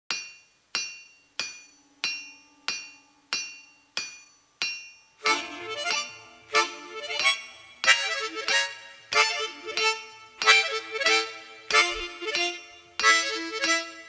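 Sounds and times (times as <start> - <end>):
hammer striking an anvil: 0.1 - 6.3, 7.2 - 13.9
loud music: 5.2 - 8.5.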